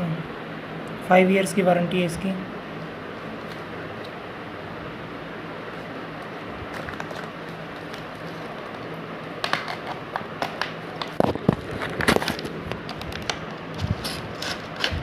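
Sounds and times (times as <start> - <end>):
steady background hiss: 0.0 - 15.0
cardboard and packaging crackling: 6.6 - 15.0.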